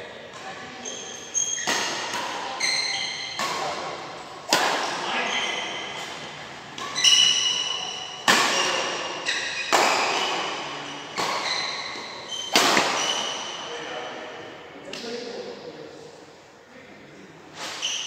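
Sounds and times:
shoes squeaking on court: 0:00.6 - 0:03.5, 0:06.8 - 0:13.6, 0:17.6 - 0:18.0
rackets hitting shuttlecock: 0:01.5 - 0:13.6.

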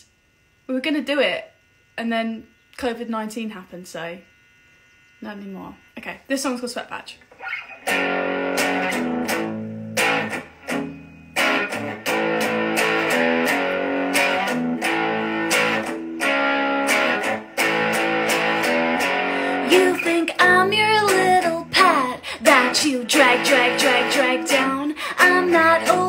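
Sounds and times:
electric guitar strumming chords: 0:07.4 - 0:26.0.

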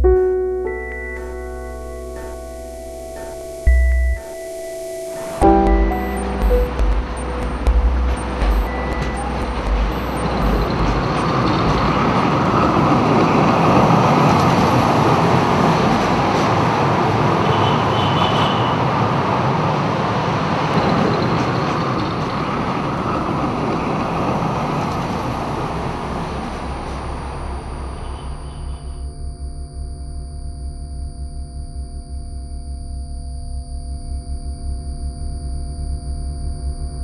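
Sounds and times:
tram passing rumble: 0:00.0 - 0:29.1.

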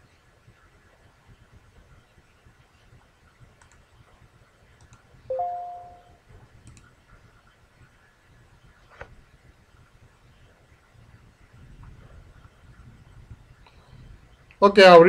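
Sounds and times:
faint clicks: 0:03.6 - 0:03.8, 0:06.6 - 0:06.9
two-note electronic alert chime: 0:05.3 - 0:06.1.

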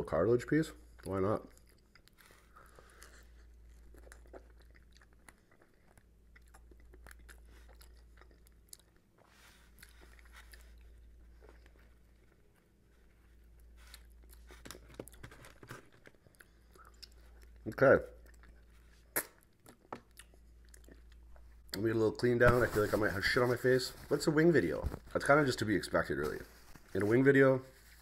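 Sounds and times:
chewing with wet mouth clicks: 0:00.9 - 0:11.8, 0:16.2 - 0:21.8.

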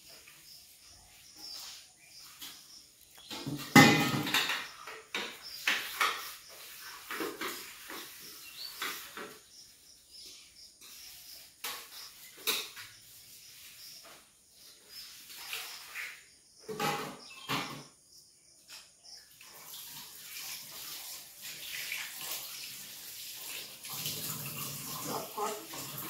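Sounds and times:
dishes and utensils clinking: 0:03.2 - 0:06.4, 0:11.6 - 0:12.9.

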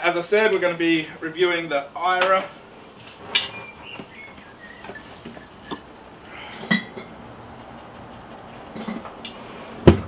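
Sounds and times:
glass bottles clinking in cooler: 0:04.6 - 0:07.1.

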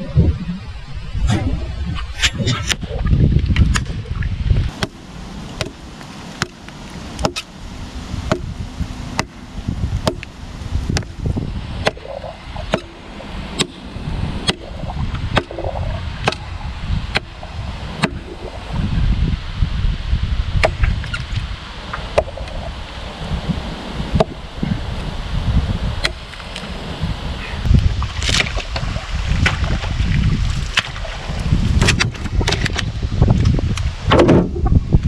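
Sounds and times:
machete chopping into a log: 0:07.2 - 0:07.5, 0:08.3 - 0:08.5, 0:10.0 - 0:10.3.

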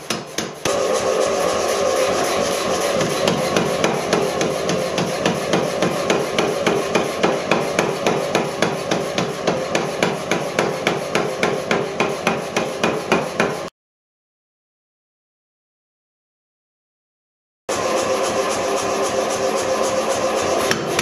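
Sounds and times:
power hammer blows: 0:00.1 - 0:13.7
machine running: 0:00.6 - 0:13.7, 0:17.7 - 0:21.0.

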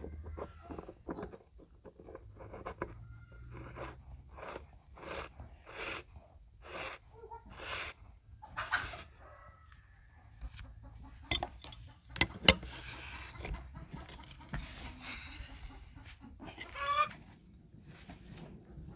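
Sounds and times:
chicken clucking: 0:06.6 - 0:17.6.

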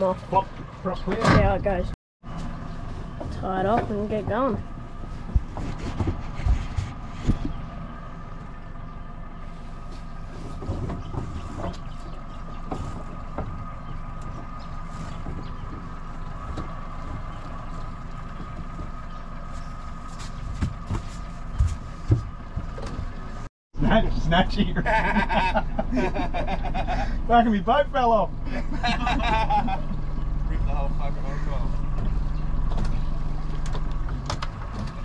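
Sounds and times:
outboard motor idling: 0:21.3 - 0:35.0.

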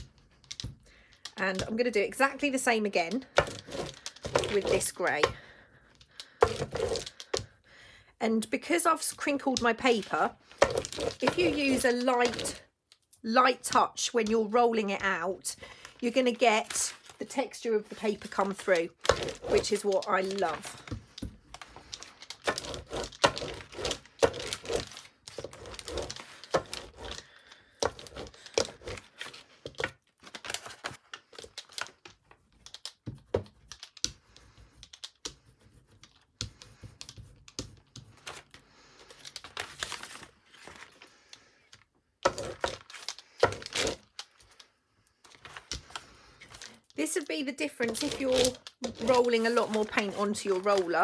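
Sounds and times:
paper rustling and crackling: 0:15.7 - 0:51.0.

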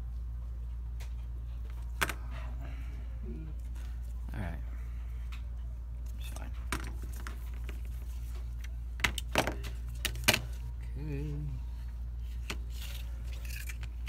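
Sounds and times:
low electrical hum: 0:00.0 - 0:14.0
person humming: 0:03.2 - 0:03.7, 0:10.8 - 0:11.8.

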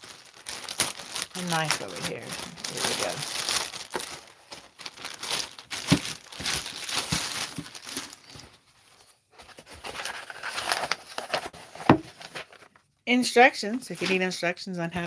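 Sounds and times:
plastic packaging tearing and crinkling: 0:00.0 - 0:08.7, 0:09.5 - 0:12.6.

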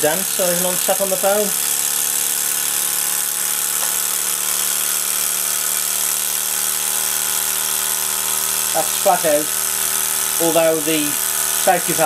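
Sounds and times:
model steam engine whirring: 0:00.0 - 0:12.0.

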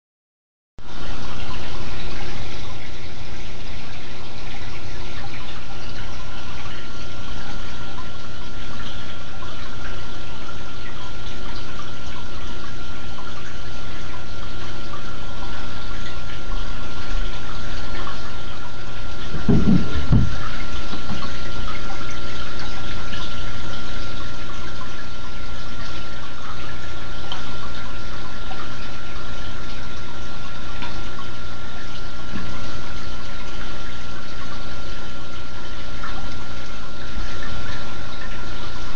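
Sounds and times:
low steady hum: 0:00.8 - 0:38.9
thin steady whine: 0:00.8 - 0:38.9
water trickling and bubbling: 0:00.8 - 0:38.9
low hum: 0:16.8 - 0:21.9.

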